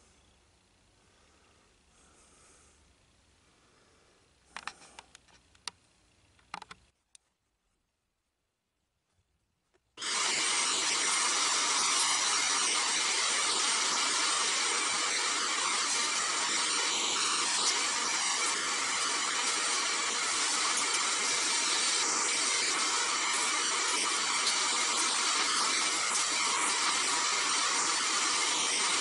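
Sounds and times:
shop vacuum running: 10.0s - 29.0s.

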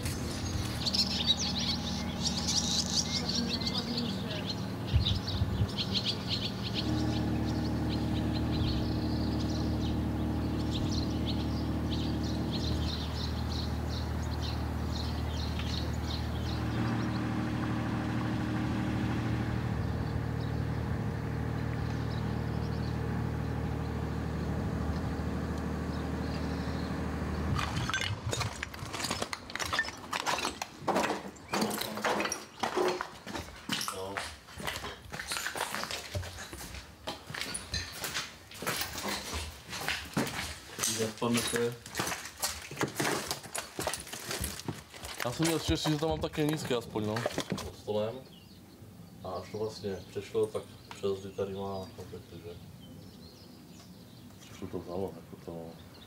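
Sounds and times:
engine idling: 0.0s - 27.9s
birds chirping: 0.0s - 56.0s
footsteps on broken glass: 27.6s - 47.8s.

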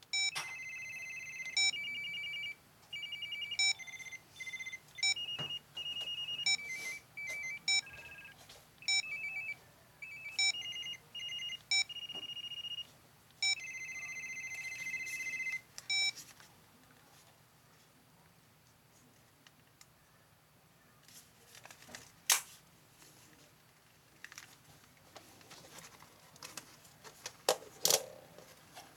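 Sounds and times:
phone ringtone trills: 0.1s - 16.1s
phone key beep: 0.1s - 16.2s.

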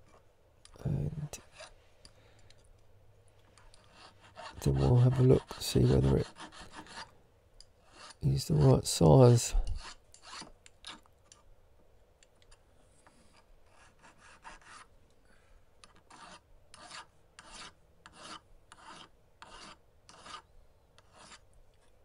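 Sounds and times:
file rasping on metal ring: 1.3s - 1.8s, 3.6s - 7.1s, 7.8s - 9.0s, 9.6s - 11.0s, 13.3s - 14.9s, 15.8s - 21.4s.

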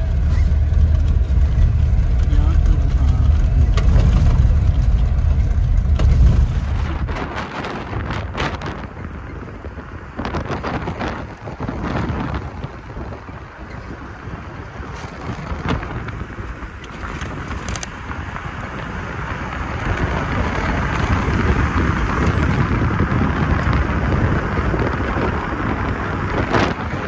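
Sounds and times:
car road and wind noise: 0.0s - 27.0s.

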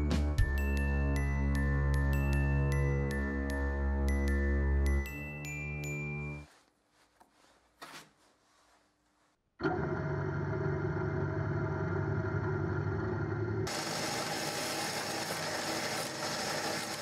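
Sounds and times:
faint handling noises: 6.4s - 9.4s
drill press boring pumpkin: 9.6s - 17.0s.

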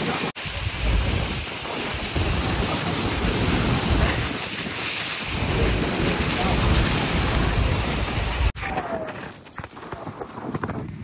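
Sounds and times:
rushing falling water: 0.0s - 8.6s
wind gusting on microphone: 0.0s - 11.0s.

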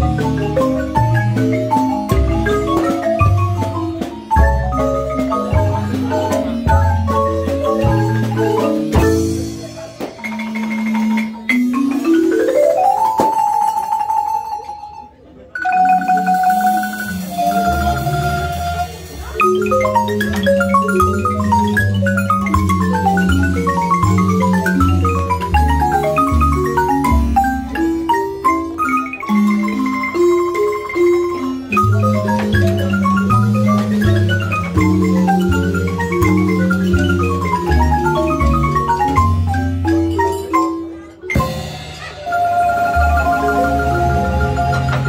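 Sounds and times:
double bass line: 0.0s - 14.6s, 15.8s - 45.0s
marimba ensemble playing: 0.0s - 45.0s.

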